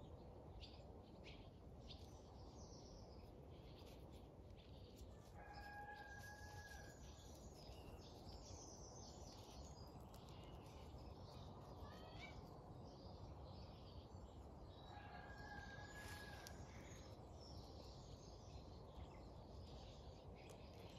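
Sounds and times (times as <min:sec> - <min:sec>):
faint bird chirps: 0:07.5 - 0:14.2.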